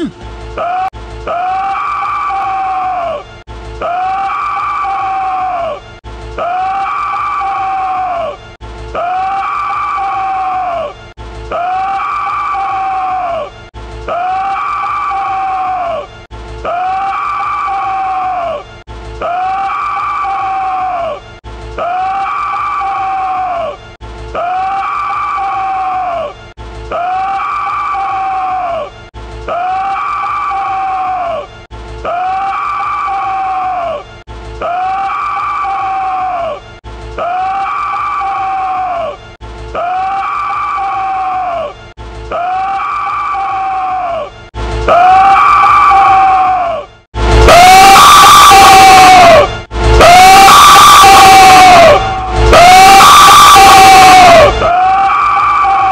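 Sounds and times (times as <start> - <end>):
man screaming: 39.8 - 46.9, 47.5 - 55.9.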